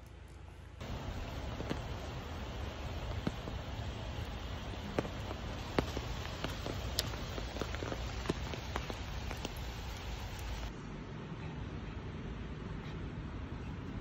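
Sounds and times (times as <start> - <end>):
drops ticking nearby: 0.8 - 10.7
steady rain falling: 0.8 - 10.8.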